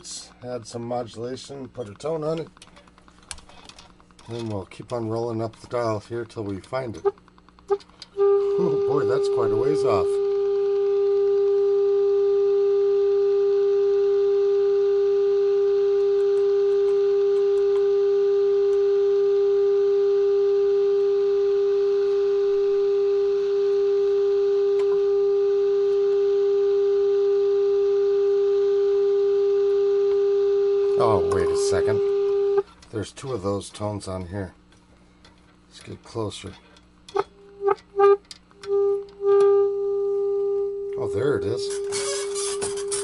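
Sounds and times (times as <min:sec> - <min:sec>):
steady test tone through radio speaker: 0:06.8 - 0:32.7, 0:37.2 - 0:43.0.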